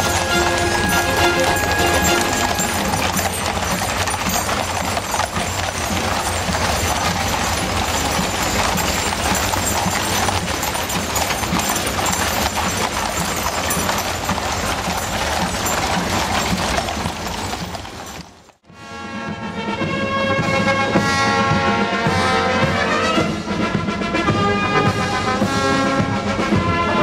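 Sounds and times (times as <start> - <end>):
band music: 0.0 - 4.6
horse hooves on tarmac: 0.0 - 27.0.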